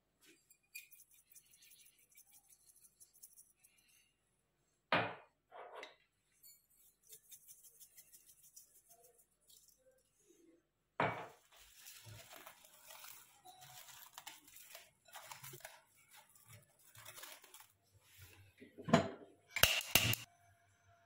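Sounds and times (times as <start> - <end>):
cling film crinkling: 11.5 - 18.4.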